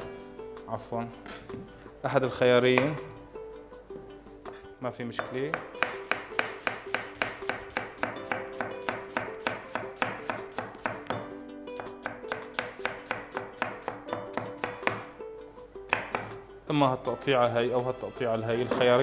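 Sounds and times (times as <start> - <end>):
knife chopping on wooden board: 5.2 - 15.1, 15.9 - 16.4.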